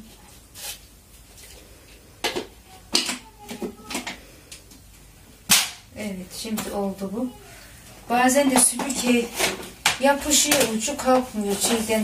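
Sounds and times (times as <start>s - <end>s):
loud plastic snap: 5.5s - 5.8s.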